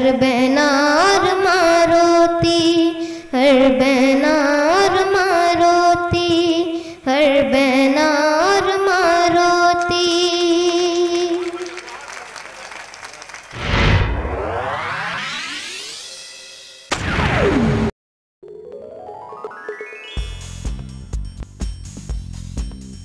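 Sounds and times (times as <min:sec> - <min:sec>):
boy singing into a microphone: 0:00.0 - 0:11.6.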